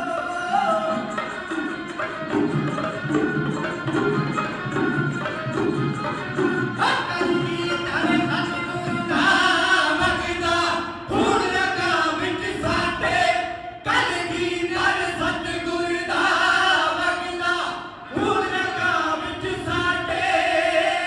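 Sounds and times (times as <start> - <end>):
men singing together: 0.0 - 1.4, 6.8 - 21.0.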